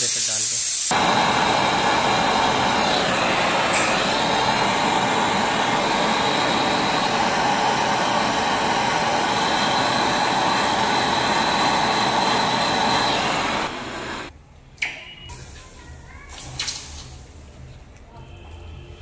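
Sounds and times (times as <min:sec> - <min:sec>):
torch flame hissing: 0:00.0 - 0:14.3.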